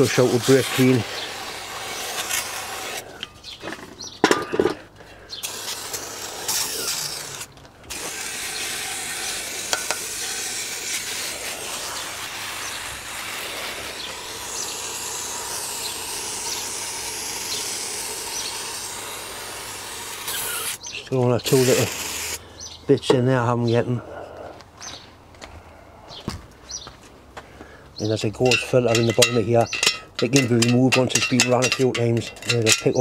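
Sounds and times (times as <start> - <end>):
aerosol spray hissing: 7.9 - 20.8, 21.5 - 22.4.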